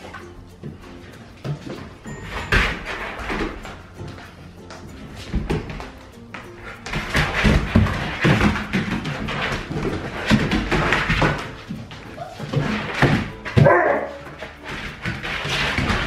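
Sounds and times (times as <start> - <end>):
dogs thudding on tiled floor: 0.0 - 16.0.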